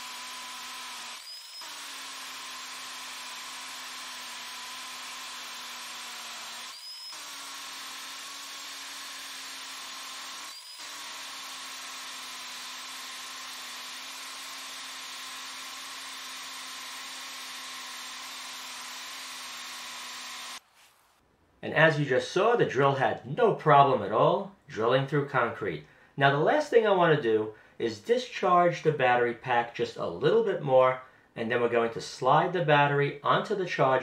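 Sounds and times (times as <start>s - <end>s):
hammer drill grinding concrete: 0.0s - 20.6s.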